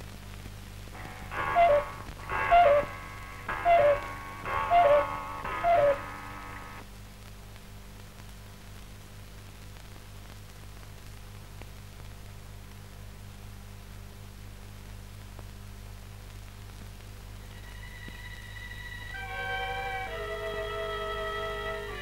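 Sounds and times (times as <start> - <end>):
film soundtrack hiss and hum: 0.0 - 22.0
cuckoo clock call: 1.0 - 6.8, 19.0 - 22.0.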